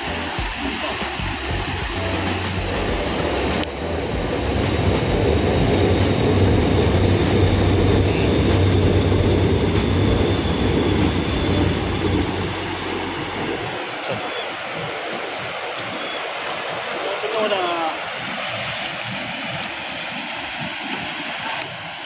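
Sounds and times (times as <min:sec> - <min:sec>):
train rumbling on viaduct: 0:00.0 - 0:16.2
thin high whine: 0:00.0 - 0:22.0.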